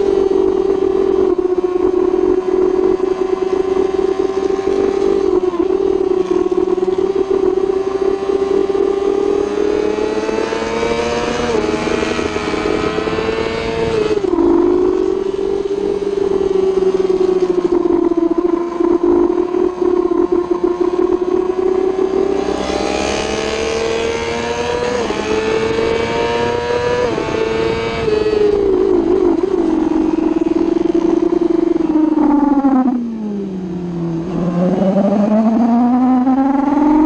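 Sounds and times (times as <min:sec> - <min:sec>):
motorbike engine revving: 0:00.0 - 0:37.0
wind rushing: 0:09.6 - 0:33.2.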